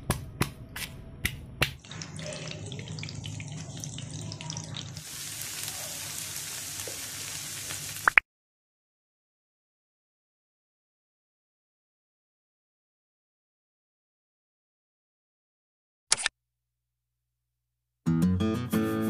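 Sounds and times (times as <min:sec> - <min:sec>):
stone pestle pounding in mortar: 0:00.0 - 0:01.8
fish sizzling in hot oil: 0:01.8 - 0:08.2.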